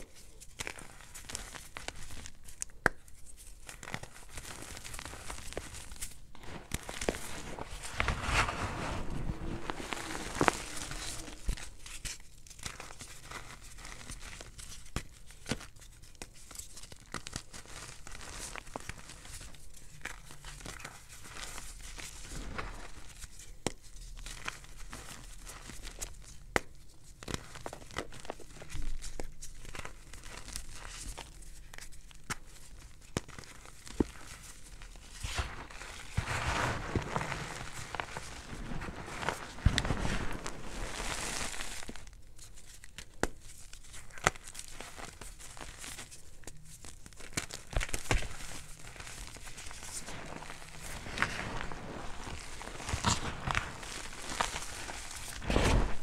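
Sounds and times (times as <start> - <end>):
chalk powder crunching: 33.4 - 42.1, 47.2 - 55.9.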